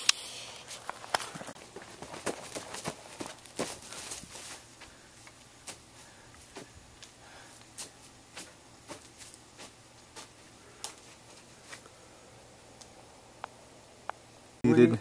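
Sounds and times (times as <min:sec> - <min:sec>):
footsteps on dry grass: 0:00.6 - 0:06.8, 0:07.6 - 0:11.8.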